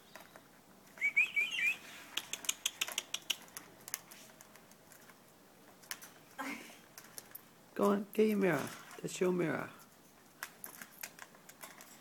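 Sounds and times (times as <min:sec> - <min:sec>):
parrot chirping: 0:01.0 - 0:03.5.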